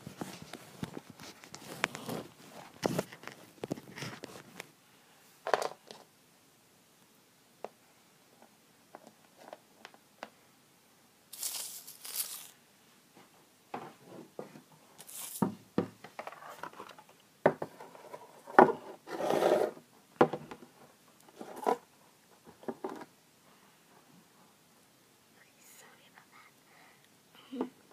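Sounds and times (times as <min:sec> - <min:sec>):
rustling and scraping: 0:00.0 - 0:04.7, 0:11.3 - 0:12.6, 0:13.2 - 0:19.8, 0:20.7 - 0:23.1.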